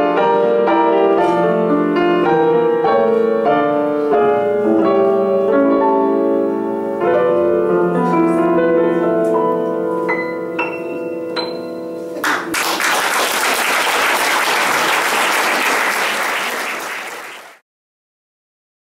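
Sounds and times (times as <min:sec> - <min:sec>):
high piano notes: 0:00.0 - 0:12.5
piano chord ringing: 0:02.0 - 0:12.2
audience applause: 0:12.2 - 0:17.6.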